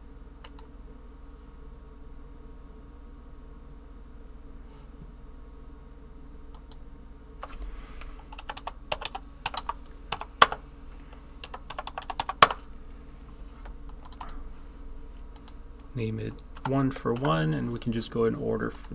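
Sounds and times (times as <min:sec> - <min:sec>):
typing on computer keyboard: 0:08.3 - 0:10.6, 0:11.4 - 0:12.6, 0:13.9 - 0:14.4, 0:16.6 - 0:17.4.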